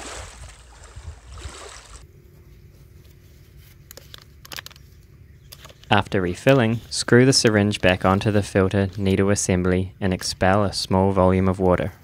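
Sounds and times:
river water trickling and splashing: 0.0s - 2.0s.

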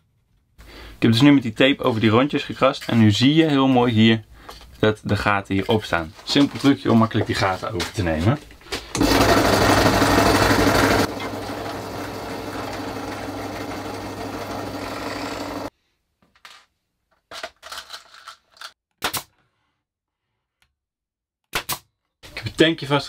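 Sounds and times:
drill press drilling wood: 8.9s - 15.7s
brad nailer firing: 9.0s - 15.7s.

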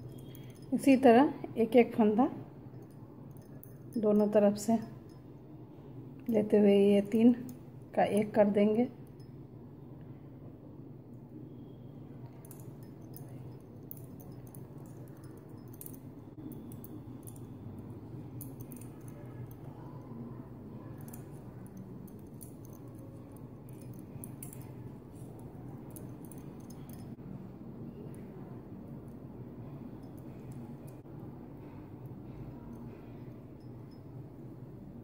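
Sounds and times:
steady low hum: 0.0s - 35.0s
knitting needles clicking: 18.3s - 20.0s, 20.8s - 27.2s.

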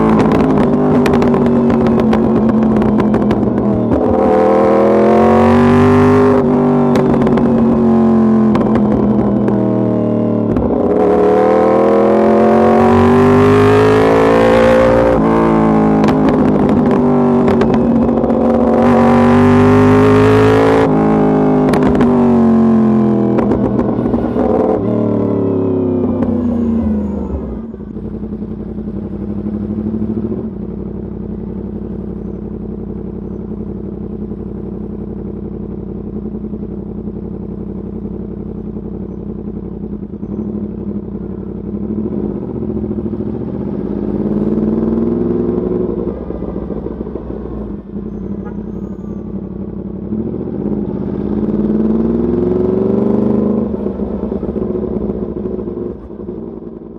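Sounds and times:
motorcycle engine revving: 0.0s - 56.9s.

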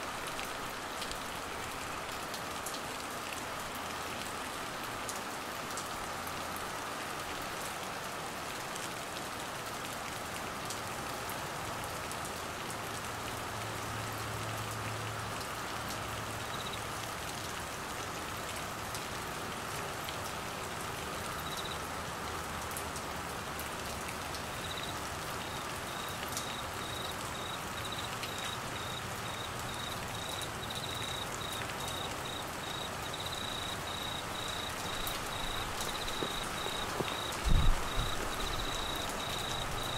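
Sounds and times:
heavy rain: 0.0s - 39.9s
cricket chirping: 16.5s - 16.8s, 21.4s - 21.8s, 24.5s - 39.9s.

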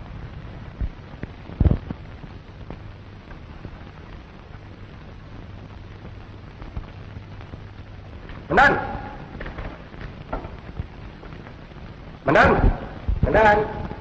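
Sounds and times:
film soundtrack hiss and hum: 0.0s - 14.0s.

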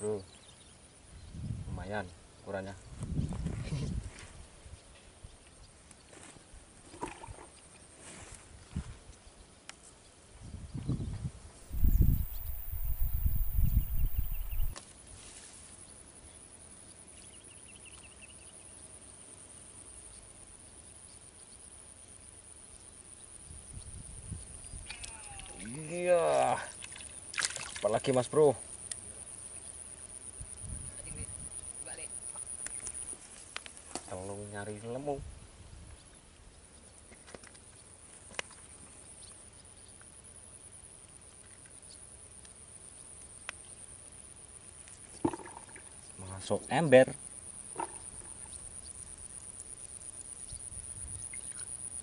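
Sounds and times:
insect chirps: 0.0s - 52.0s
soft hiss: 0.0s - 52.0s
high-pitched insect drone: 11.7s - 14.8s.

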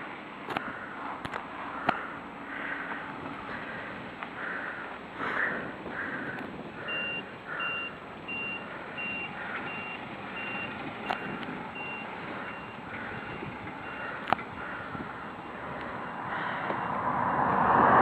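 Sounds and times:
truck reversing alarm beeping: 6.8s - 17.2s.

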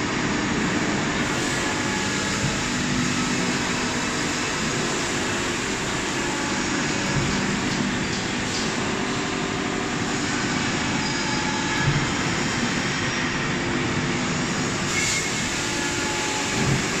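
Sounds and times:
press machine whir and hum: 0.0s - 17.0s.

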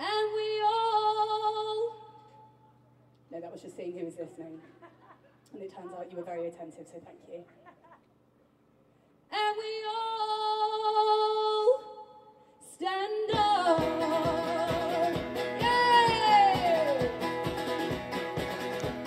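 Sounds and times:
woman singing: 0.0s - 2.2s, 9.3s - 17.4s
guitar: 13.3s - 19.0s
live band music: 13.8s - 19.0s.

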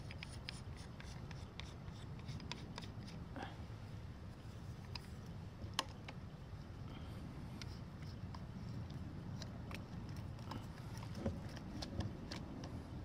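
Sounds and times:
plastic adapter clicks and rubbing: 0.0s - 3.2s, 7.6s - 12.8s
low background rumble: 0.0s - 13.0s.

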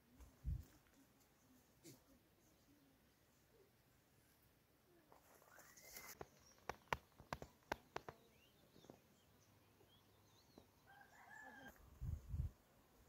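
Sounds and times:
faint bird chirps: 4.9s - 11.8s
faint rooster crow: 10.8s - 12.0s.

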